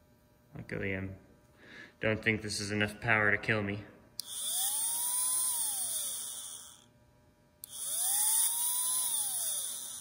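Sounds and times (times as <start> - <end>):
small electric motor whining: 4.2 - 6.9, 7.6 - 10.0.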